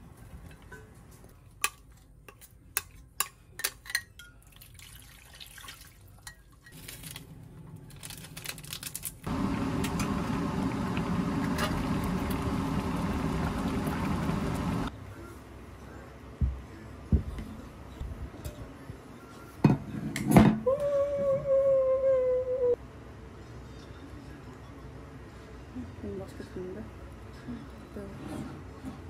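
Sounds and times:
stew bubbling in a pot: 9.3s - 14.9s.

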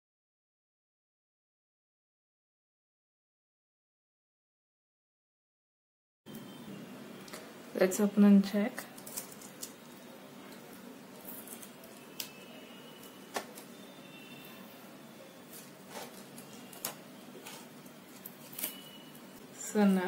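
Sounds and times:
plastic stencil handling noise: 8.8s - 13.8s, 15.4s - 19.3s.

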